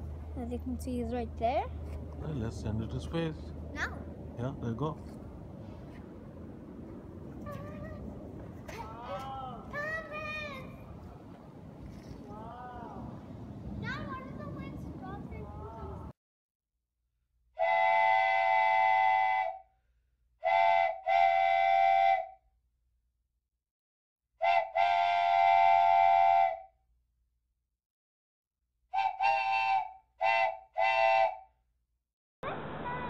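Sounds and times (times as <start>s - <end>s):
steam train whistle blasts: 17.6s - 19.6s, 20.4s - 22.3s, 24.4s - 26.6s, 29.0s - 31.4s.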